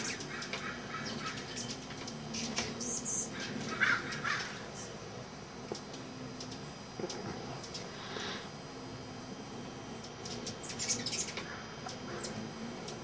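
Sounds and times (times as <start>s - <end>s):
harsh bird calls: 0.0s - 5.0s, 10.2s - 13.0s
hummingbirds chittering: 0.0s - 13.0s.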